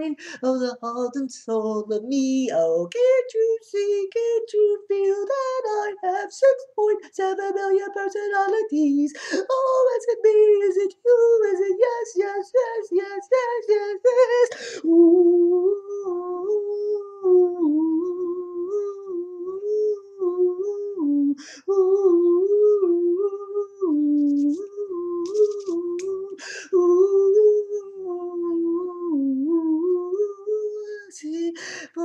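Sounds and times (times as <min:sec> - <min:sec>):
quick breath: 0:14.5 - 0:14.8
man humming: 0:14.5 - 0:31.2.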